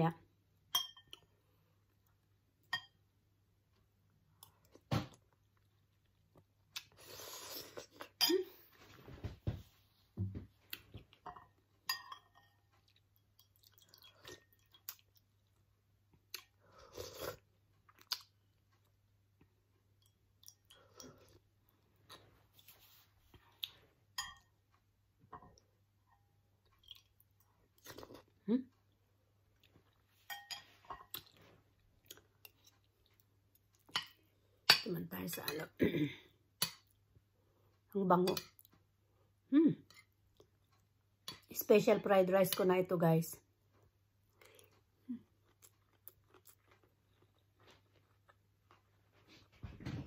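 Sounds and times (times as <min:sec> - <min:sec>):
person chewing: 0:03.7 - 0:08.2, 0:12.5 - 0:24.9, 0:26.6 - 0:34.6, 0:39.9 - 0:41.5, 0:43.7 - 0:49.2.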